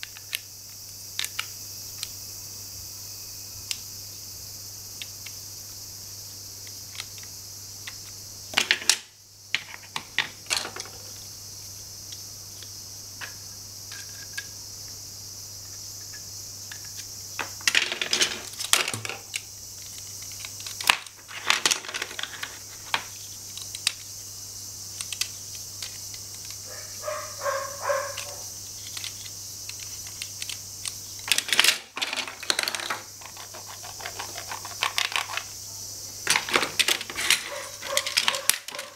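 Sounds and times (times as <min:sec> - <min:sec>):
toy pieces clicking and clattering: 0:00.0 - 0:02.1, 0:09.6 - 0:11.2, 0:16.1 - 0:24.1, 0:24.9 - 0:26.6, 0:27.4 - 0:35.6, 0:36.3 - 0:38.9
steady hiss: 0:00.0 - 0:38.9.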